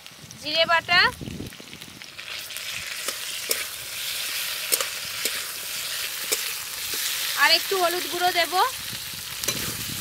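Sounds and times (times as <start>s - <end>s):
vegetables sizzling in hot oil: 0.0s - 10.0s
metal spatula clicking against pan: 4.7s - 5.4s.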